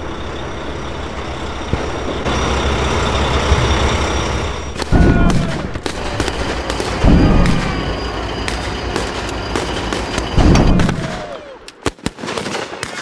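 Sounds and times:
gunshots: 4.8 - 7.9, 8.5 - 13.0
heavy explosion: 4.8 - 7.9.

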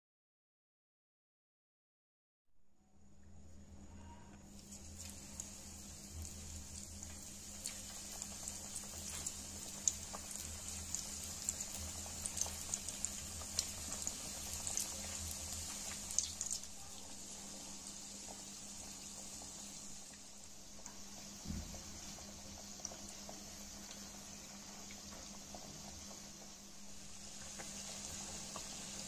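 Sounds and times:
food deep-frying in hot oil: 4.4 - 29.0
small pops and crackles: 4.6 - 16.7.

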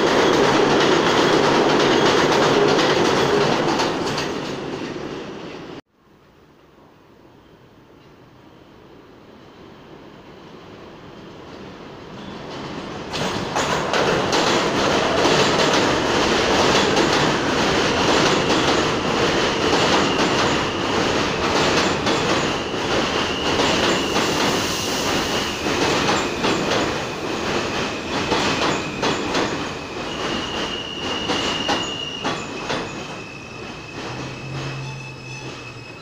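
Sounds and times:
subway train braking: 0.0 - 5.8, 6.8 - 36.0
wheels clacking over rail joints: 12.6 - 20.7
high wheel squeal: 22.2 - 36.0.

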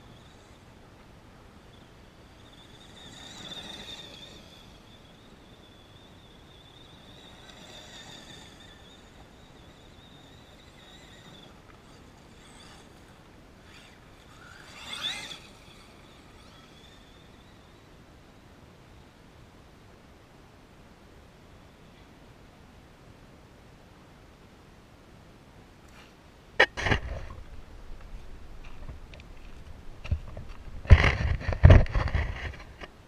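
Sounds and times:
electric rc truck motor whine: 0.0 - 19.6.

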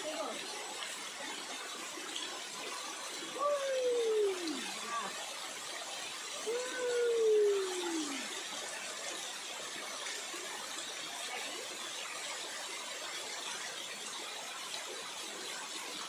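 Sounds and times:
waterfall rushing: 3.2 - 5.3, 6.1 - 8.7.

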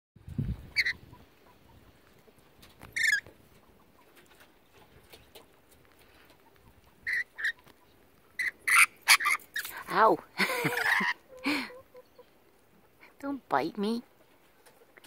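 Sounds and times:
parrots screeching: 3.0 - 3.2, 7.1 - 7.6, 8.4 - 9.8.

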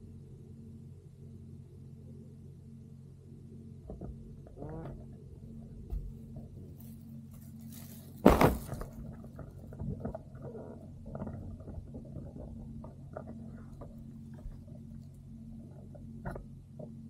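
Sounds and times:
steady low hum: 0.0 - 17.0
plastic sheet rustling: 6.6 - 10.1.

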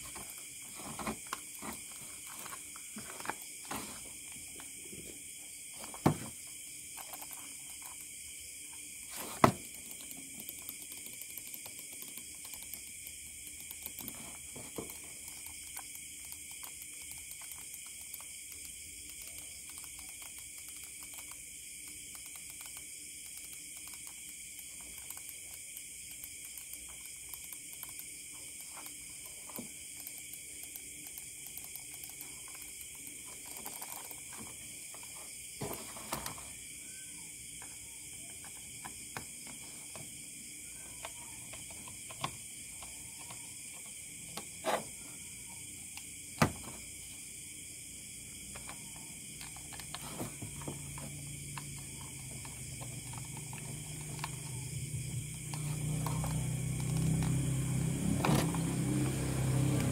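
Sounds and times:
computer mouse clicks: 6.9 - 8.1, 9.4 - 35.1, 48.4 - 50.0, 50.6 - 57.5.

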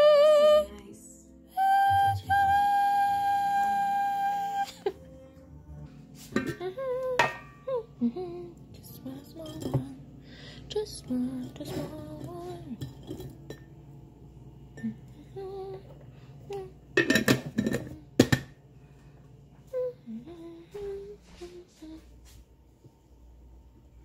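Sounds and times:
person humming a tune: 0.0 - 0.9, 1.5 - 10.0, 14.7 - 17.0, 19.6 - 22.2
glass jar clinking: 9.4 - 9.9, 11.4 - 13.8.

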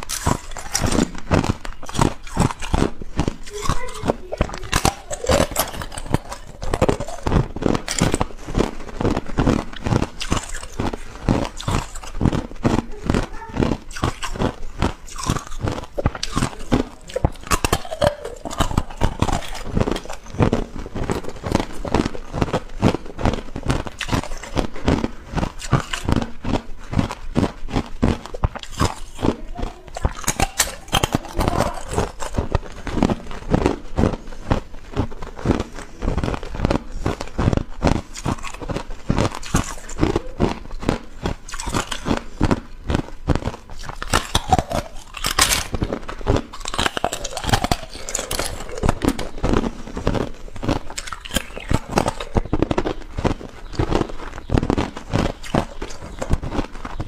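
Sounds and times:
ice cubes crunching when chewed: 0.0 - 57.0.

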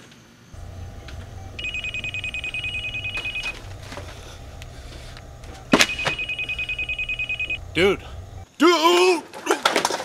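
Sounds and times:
telephone ringing: 0.6 - 8.4
steady low hum: 0.6 - 8.5.

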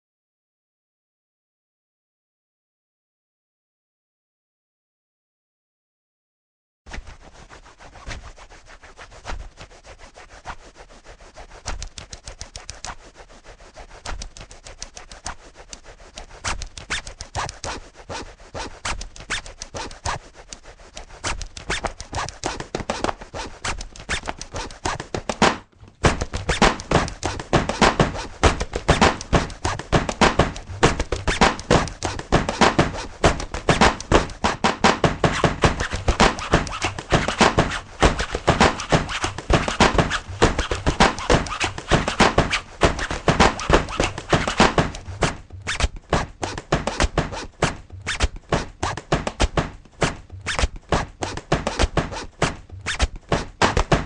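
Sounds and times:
rapid clicking and tapping: 11.6 - 13.1, 13.8 - 54.0.

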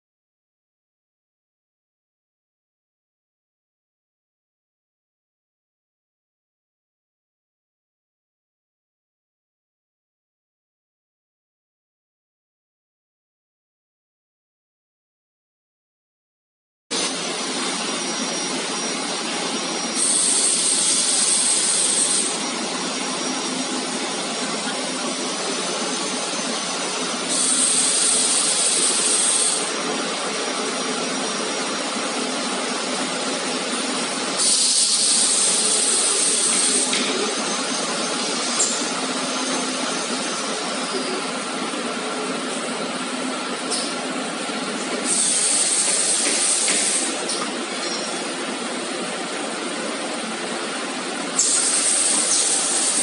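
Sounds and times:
welding machine humming: 17.0 - 50.6, 51.3 - 53.0.

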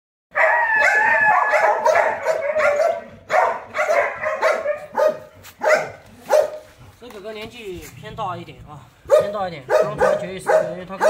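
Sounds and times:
dogs barking and yelping: 0.3 - 6.8, 9.1 - 11.0.

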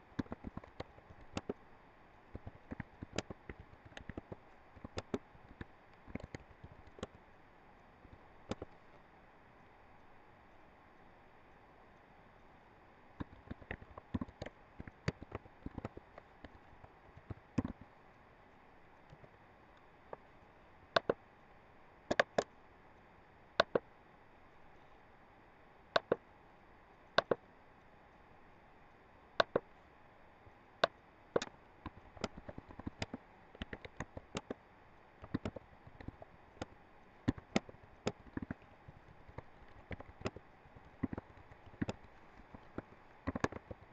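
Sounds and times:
keyboard typing: 0.2 - 1.6, 2.3 - 7.2, 8.1 - 8.7, 13.2 - 17.8, 21.0 - 21.2, 22.1 - 22.5, 23.6 - 23.8, 26.0 - 26.2, 27.2 - 27.4, 29.4 - 29.6, 31.4 - 34.6, 35.2 - 43.9
mouse clicks: 0.2 - 1.6, 2.3 - 7.2, 8.1 - 8.8, 13.2 - 17.9, 20.9 - 21.2, 22.1 - 22.5, 23.6 - 23.8, 26.0 - 26.2, 27.2 - 27.4, 29.4 - 29.7, 30.8 - 34.6, 35.2 - 43.9.

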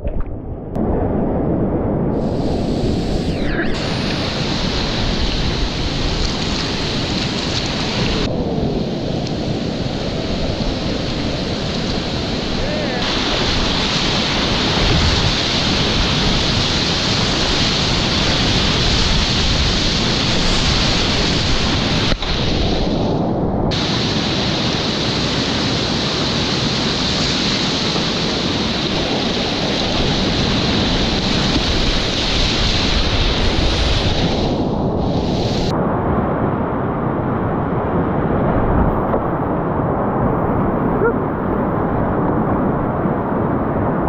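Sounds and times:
whitewater rapids rushing: 9.8 - 22.8.

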